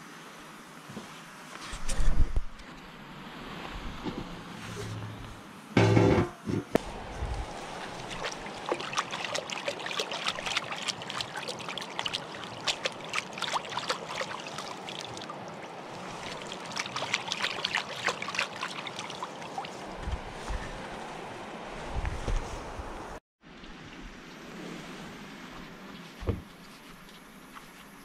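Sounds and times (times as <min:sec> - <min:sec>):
hands splashing in water: 0:07.5 - 0:15.4, 0:16.0 - 0:19.8.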